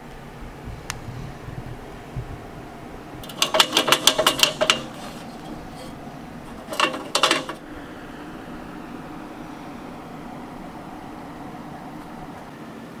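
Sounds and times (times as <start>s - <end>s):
metal bracket clicking on grill: 3.2s - 8.5s.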